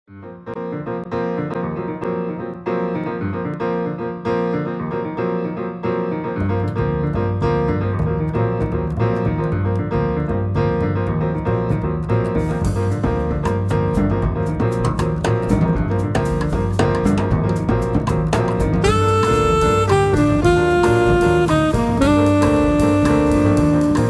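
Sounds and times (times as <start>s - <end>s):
piano playing: 0.1s - 24.0s
bass part: 6.3s - 24.0s.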